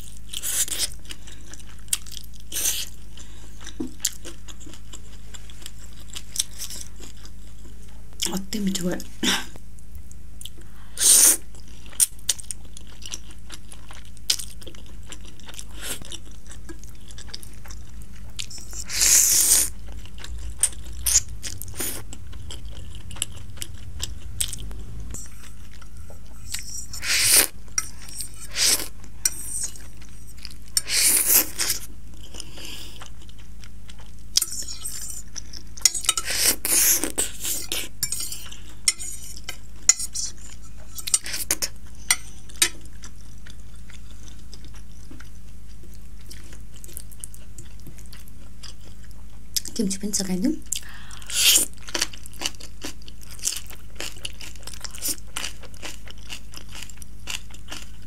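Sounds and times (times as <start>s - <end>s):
fork clicking and scraping on plate: 26.4s - 29.8s, 34.4s - 35.2s, 35.8s - 36.6s, 37.5s - 42.8s
noodles being slurped: 26.5s - 29.8s.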